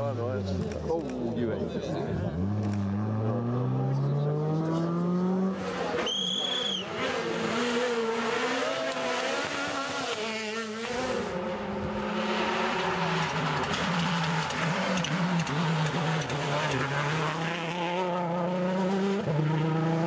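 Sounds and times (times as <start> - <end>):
rally car engines revving: 0.0 - 20.0
tyre squeal: 6.0 - 7.0.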